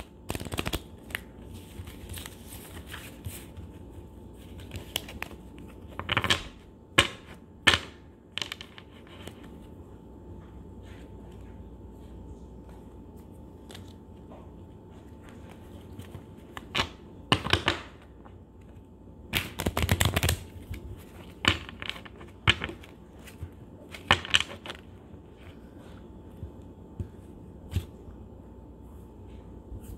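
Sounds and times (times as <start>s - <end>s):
playing cards shuffling: 0.0s - 7.4s, 18.6s - 28.2s.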